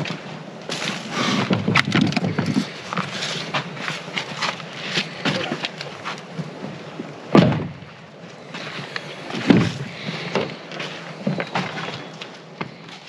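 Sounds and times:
truck doors shutting: 0:07.3 - 0:07.9, 0:09.2 - 0:10.6.

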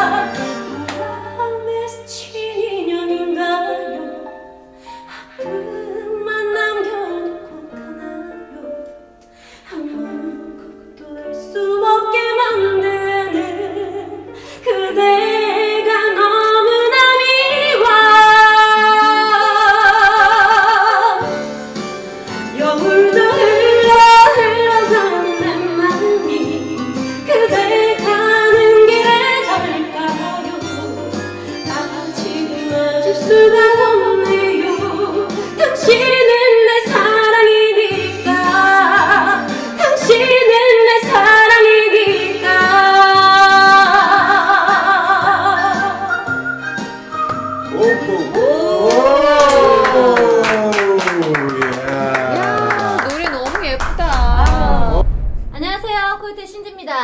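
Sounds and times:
woman singing with vibrato: 0:22.5 - 0:31.1.

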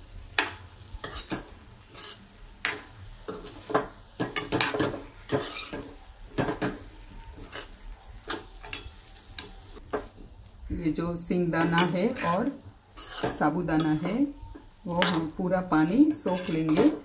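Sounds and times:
metal spatula scraping a pan: 0:00.4 - 0:10.2, 0:11.4 - 0:17.0.

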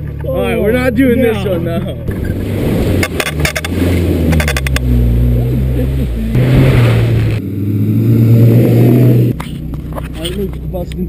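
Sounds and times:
car engine revving: 0:00.0 - 0:11.0
sharp rattling clicks: 0:03.0 - 0:04.9.

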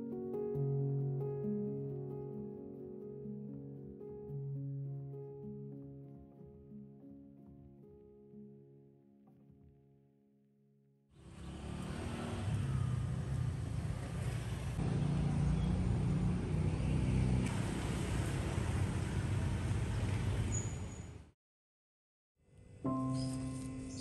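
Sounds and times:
road traffic rumble: 0:11.2 - 0:21.2.

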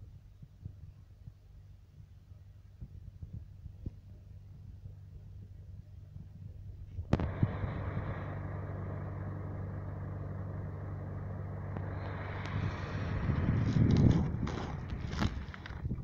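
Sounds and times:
engine idling: 0:03.7 - 0:16.0
street traffic: 0:07.2 - 0:15.9.

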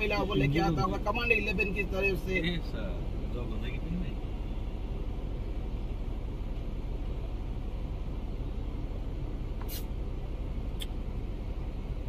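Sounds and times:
low outdoor rumbling: 0:00.0 - 0:12.0
brief high hisses: 0:09.6 - 0:09.9.

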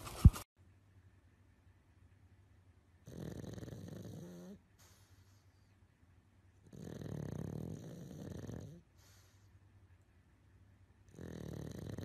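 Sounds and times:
dog snoring: 0:03.0 - 0:04.6, 0:06.6 - 0:09.4, 0:11.1 - 0:12.0.

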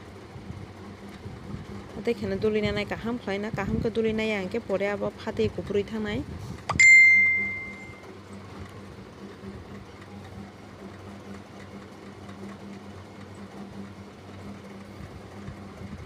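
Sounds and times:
steady low hum: 0:00.0 - 0:16.0
ringing ding: 0:06.7 - 0:08.0.

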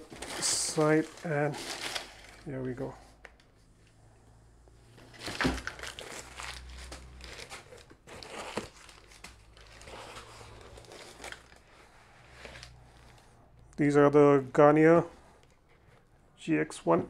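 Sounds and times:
paper wrapping crinkling: 0:00.0 - 0:02.9, 0:05.1 - 0:13.3.

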